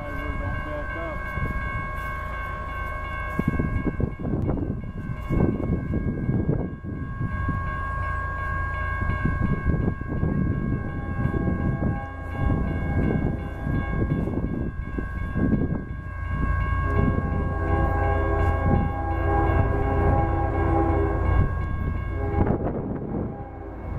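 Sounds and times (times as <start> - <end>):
crossing warning bell ringing: 0.0 - 23.9
distant locomotive horn blasts: 10.8 - 14.0, 16.4 - 23.9.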